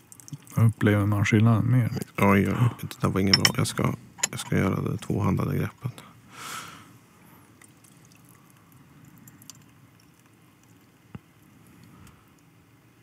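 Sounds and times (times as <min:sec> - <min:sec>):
tea pouring splash: 0:07.6 - 0:11.0.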